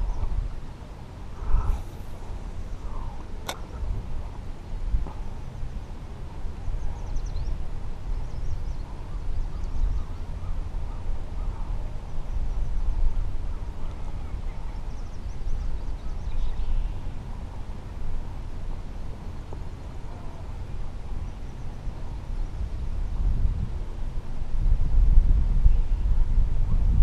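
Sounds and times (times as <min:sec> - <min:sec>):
wind buffeting microphone: 0:00.0 - 0:27.0
faint bird calls: 0:01.3 - 0:04.0, 0:08.2 - 0:17.2, 0:19.8 - 0:22.0.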